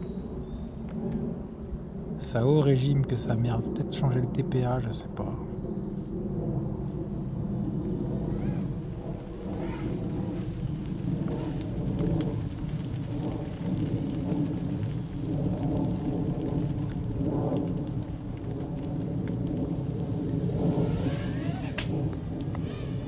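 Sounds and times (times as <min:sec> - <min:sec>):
low rumble: 0:00.0 - 0:23.0
drone motors buzzing: 0:20.6 - 0:22.0, 0:22.6 - 0:23.0.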